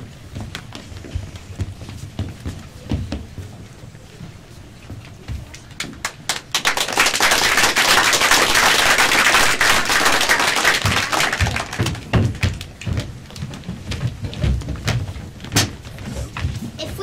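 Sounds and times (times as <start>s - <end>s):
audience applauding: 6.0s - 12.1s.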